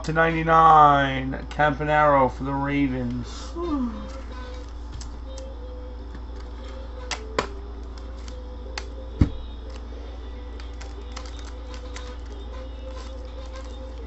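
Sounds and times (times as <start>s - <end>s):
cards clicking on table: 10.5s - 14.0s.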